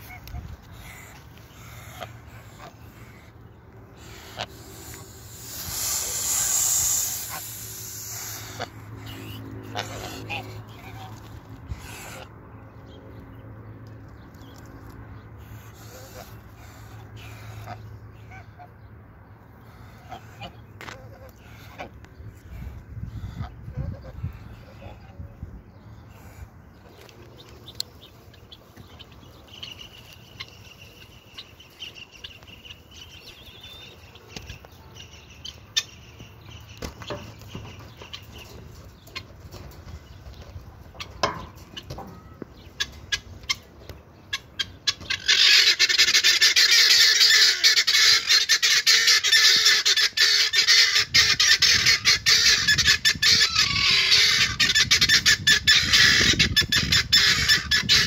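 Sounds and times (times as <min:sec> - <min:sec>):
guineafowl rattling calls: 0:00.0 - 0:12.3, 0:26.1 - 0:58.0.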